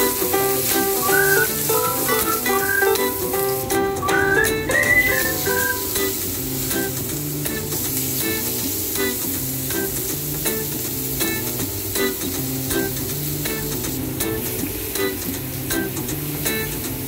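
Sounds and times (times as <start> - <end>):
background music with steady beat: 0.0 - 6.2
food sizzling in a frying pan: 0.0 - 17.0.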